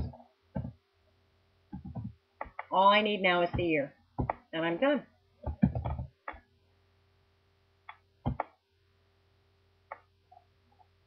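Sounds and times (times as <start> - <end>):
faint steady hum: 0.0 - 11.0
keyboard typing: 1.7 - 2.7, 5.4 - 6.4, 7.9 - 8.6.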